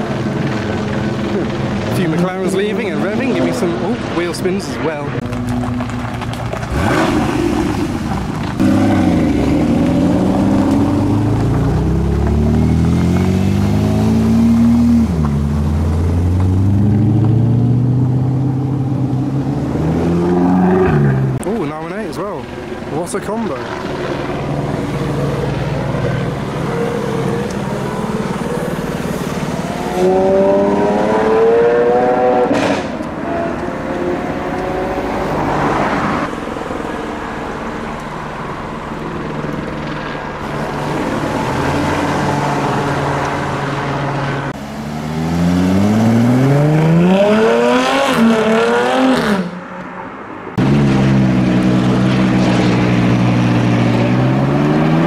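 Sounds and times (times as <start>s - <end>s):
car engine idling: 0.0s - 19.9s, 21.2s - 31.1s, 36.2s - 45.9s
supercar engines revving: 0.0s - 55.0s.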